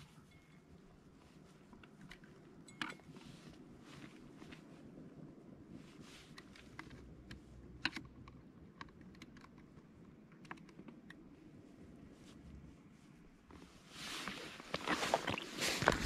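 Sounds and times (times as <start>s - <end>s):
small clicks and taps: 6.3s - 11.3s.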